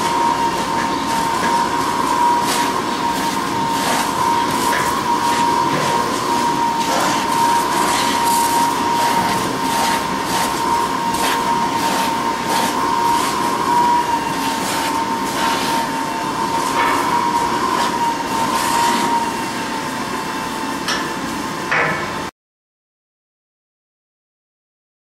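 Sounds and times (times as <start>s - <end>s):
mechanical hum with whine: 0.0s - 22.3s
brush strokes on horse coat: 2.4s - 4.7s, 6.8s - 13.6s, 14.2s - 16.0s, 17.8s - 19.1s.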